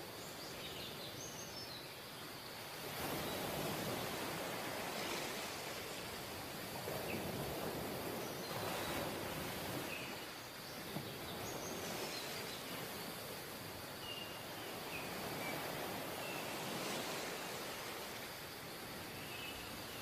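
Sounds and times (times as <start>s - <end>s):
surf washing on sandy beach: 2.0s - 20.0s.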